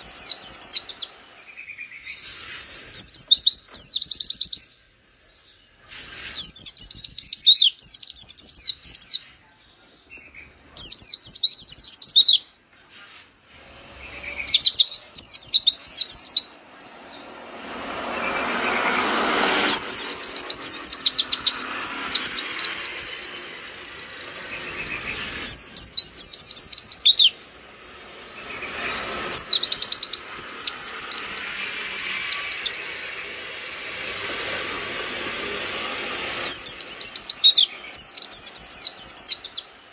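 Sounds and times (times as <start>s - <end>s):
bird twittering: 0.0s - 17.3s, 18.2s - 33.5s, 35.2s - 39.9s
rushing background noise: 0.0s - 39.9s.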